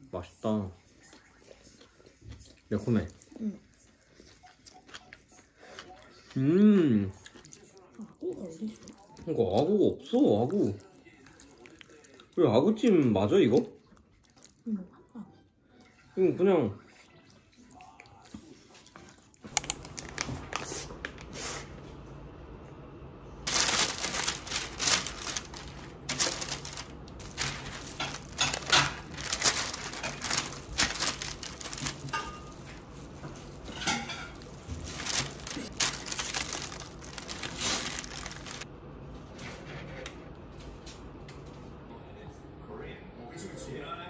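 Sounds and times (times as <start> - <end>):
low steady hum: 19.5 - 44.0
paper and plastic gloves crinkling: 19.6 - 21.0, 23.4 - 38.7.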